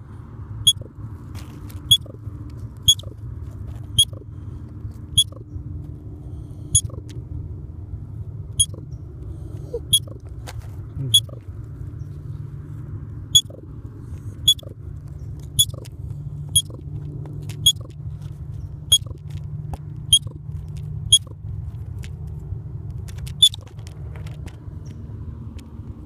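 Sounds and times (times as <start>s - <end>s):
steady low rumble: 0.0s - 26.0s
baby squirrel squeaking: 0.6s - 0.9s, 1.8s - 2.2s, 2.8s - 3.2s, 3.9s - 4.3s, 5.1s - 5.5s, 6.6s - 7.1s, 8.6s - 10.3s, 11.0s - 11.5s, 13.3s - 17.0s, 17.6s - 19.3s, 20.0s - 21.5s, 23.2s - 23.8s.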